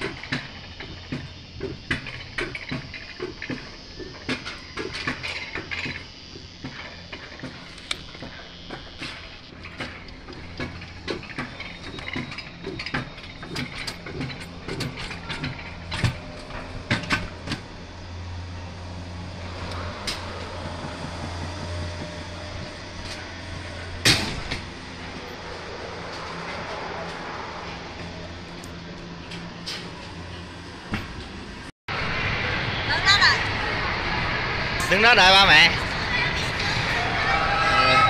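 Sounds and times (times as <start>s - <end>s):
coaster sled rattling on rails: 0.0s - 31.7s, 32.7s - 38.0s
loud clunk: 24.0s - 24.7s.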